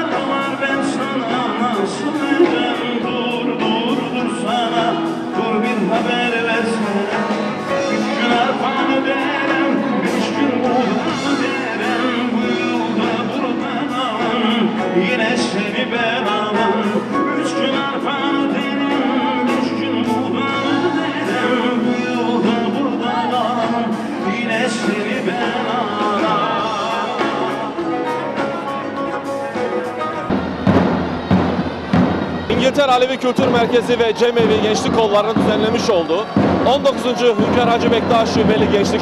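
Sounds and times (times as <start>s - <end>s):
man singing into microphone: 0.0s - 30.2s, 32.5s - 39.0s
live folk-rock band: 0.0s - 39.0s.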